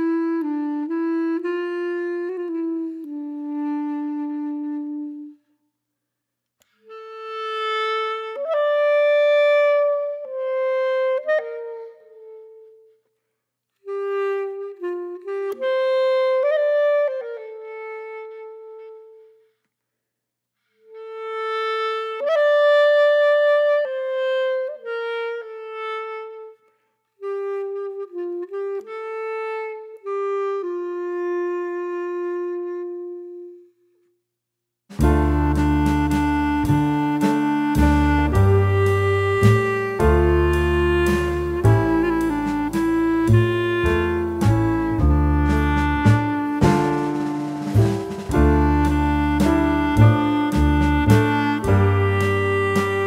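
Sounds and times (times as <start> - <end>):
wind instrument slow melody: 0.0 - 5.5, 6.6 - 13.1, 13.8 - 19.6, 20.8 - 33.9, 34.9 - 53.0.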